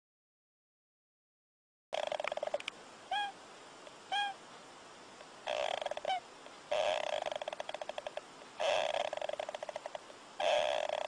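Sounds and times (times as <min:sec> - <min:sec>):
hamster snoring: 0:02.0 - 0:02.6, 0:05.5 - 0:11.0.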